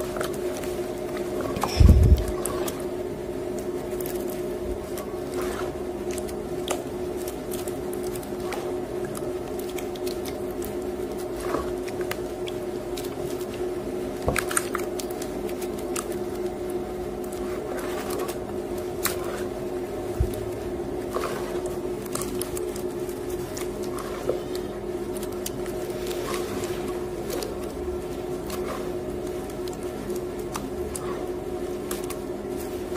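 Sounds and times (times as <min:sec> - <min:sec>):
washing machine hum: 0:00.0 - 0:32.9
wet squelches and drips: 0:00.0 - 0:32.9.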